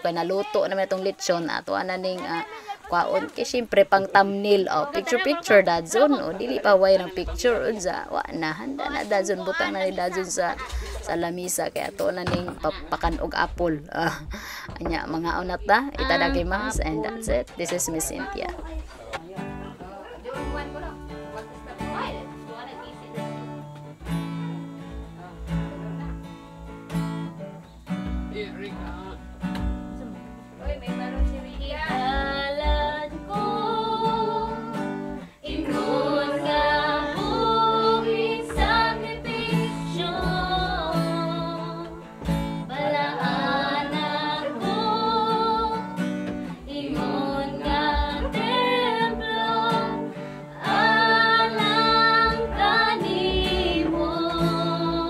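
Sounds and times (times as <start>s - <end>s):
acoustic guitar strumming: 0.0s - 55.0s
people singing: 31.3s - 55.0s.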